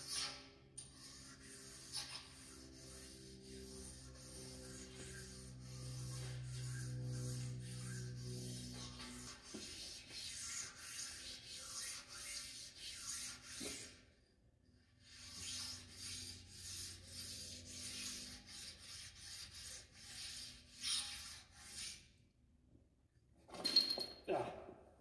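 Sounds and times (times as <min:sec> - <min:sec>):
sharpening stone scraping on iron: 0:00.0 - 0:03.8, 0:15.1 - 0:22.0.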